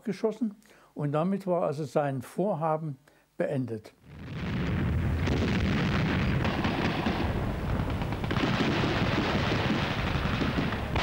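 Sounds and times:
explosions: 4.0 - 11.0
rapid gunfire cracks: 4.2 - 11.0.

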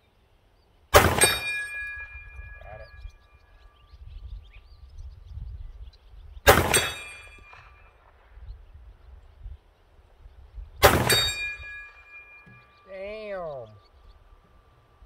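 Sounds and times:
pistol shots: 1.0 - 1.6, 6.5 - 8.2, 10.8 - 11.8.

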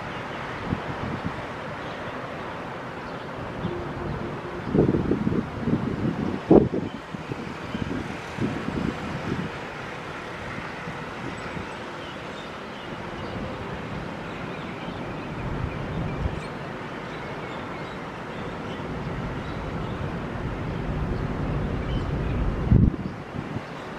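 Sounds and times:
wind buffeting microphone: 0.0 - 1.6, 3.3 - 11.8, 15.2 - 16.6, 18.8 - 23.9.

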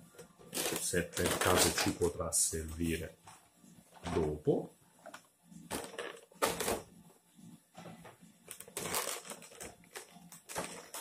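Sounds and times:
plastic packaging crinkling: 0.5 - 1.9, 8.5 - 11.0.

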